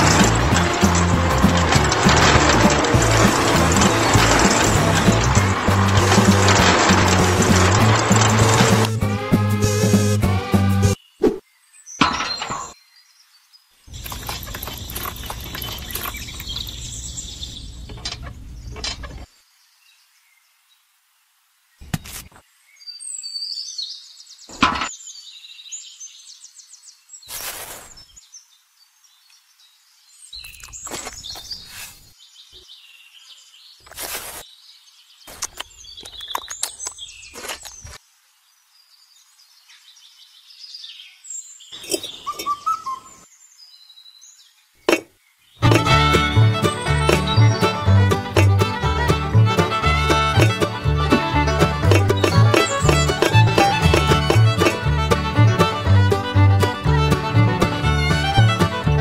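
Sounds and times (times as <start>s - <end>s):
small objects knocking and clinking: 0.0s - 9.0s, 13.9s - 17.0s, 51.5s - 55.2s
birds chirping: 10.8s - 20.4s, 21.8s - 38.0s, 38.6s - 59.0s.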